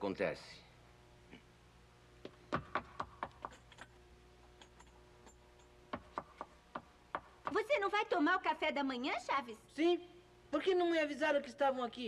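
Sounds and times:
faint steady hum: 0:00.0 - 0:12.0
quick footsteps tapping: 0:02.2 - 0:03.9, 0:05.9 - 0:07.7.

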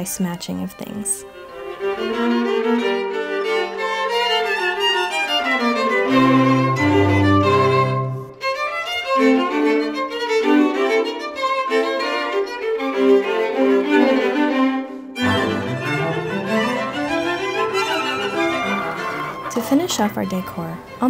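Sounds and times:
low sustained music part: 0:00.0 - 0:08.6, 0:14.8 - 0:21.0
violin melody: 0:00.0 - 0:21.0.

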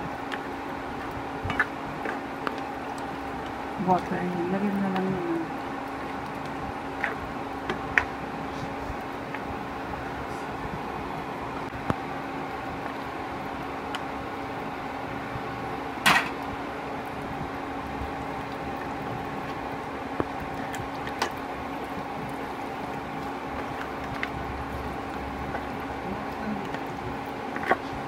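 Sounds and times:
steady hum: 0:00.0 - 0:28.0
spatula stirring food in pan: 0:00.1 - 0:04.1, 0:04.9 - 0:10.6, 0:17.6 - 0:28.0.

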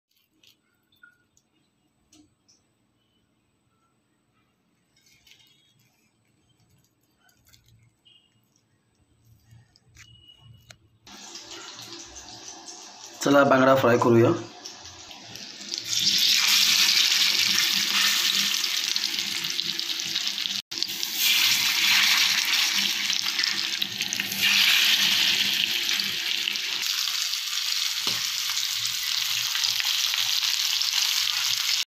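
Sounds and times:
fish sizzling in oil: 0:11.1 - 0:31.9.

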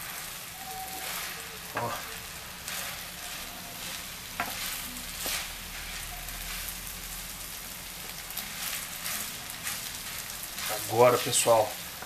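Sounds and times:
rice sizzling in frying pan: 0:00.0 - 0:12.0
wooden spoon stirring and scraping: 0:00.0 - 0:12.0.

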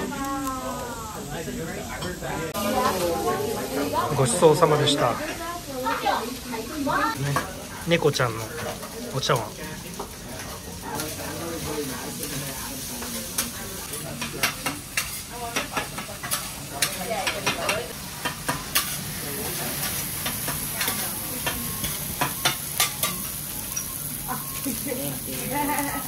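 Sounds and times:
food sizzling on griddle: 0:00.0 - 0:26.0
metal utensils and dishes clinking: 0:07.2 - 0:26.0.

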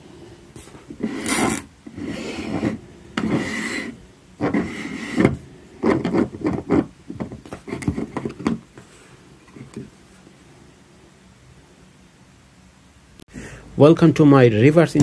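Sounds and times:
plastic rubbing and scraping on table: 0:00.6 - 0:08.9.

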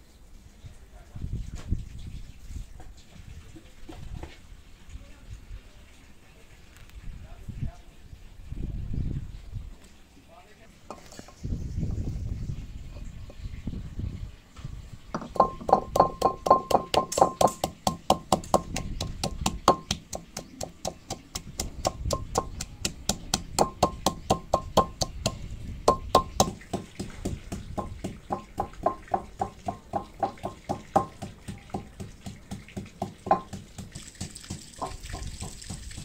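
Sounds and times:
pestle pounding in clay mortar: 0:10.9 - 0:11.4, 0:15.2 - 0:36.0.

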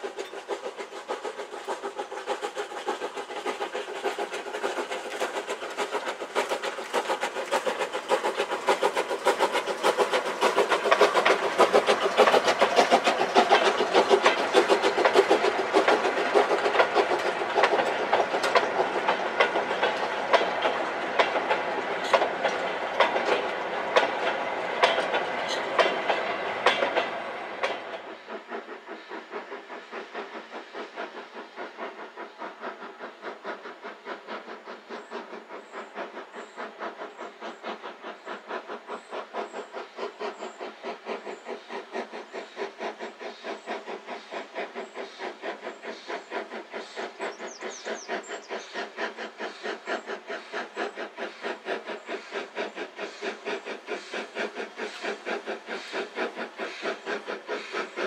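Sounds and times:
steam train passing: 0:00.0 - 0:58.0
wagon wheels clicking over rail joints: 0:02.8 - 0:27.9.

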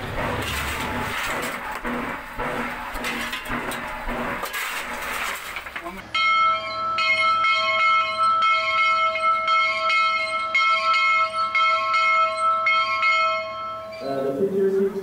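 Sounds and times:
hand-rung bell ringing: 0:06.2 - 0:14.6.

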